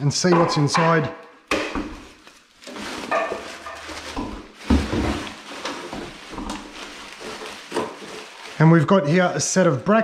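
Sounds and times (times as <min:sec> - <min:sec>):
plastic film and cardboard crinkling: 0:01.7 - 0:10.0.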